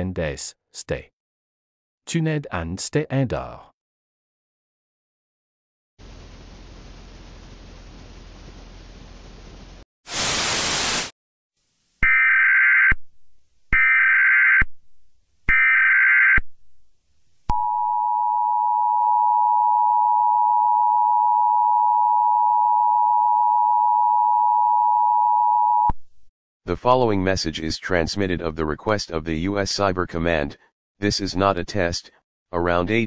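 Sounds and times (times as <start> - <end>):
burst of static: 10.1 - 11.1.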